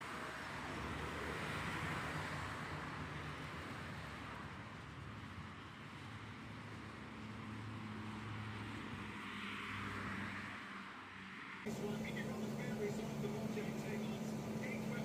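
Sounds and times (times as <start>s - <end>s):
road traffic passing: 0.1s - 15.0s
low engine hum: 11.7s - 15.0s.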